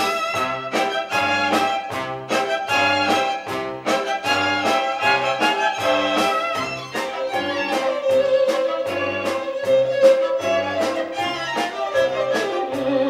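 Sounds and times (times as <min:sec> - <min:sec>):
orchestra with strings: 0:00.0 - 0:13.0
solo violin melody: 0:00.0 - 0:13.0.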